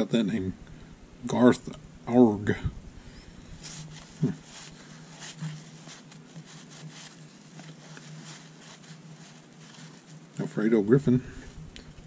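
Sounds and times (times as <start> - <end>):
cards sliding by hand: 3.5 - 10.3.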